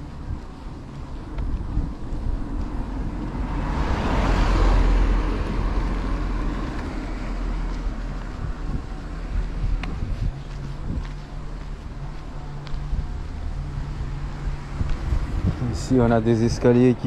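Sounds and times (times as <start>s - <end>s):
wind rumble on microphone: 0.0s - 17.0s
small car passing close: 3.0s - 8.5s.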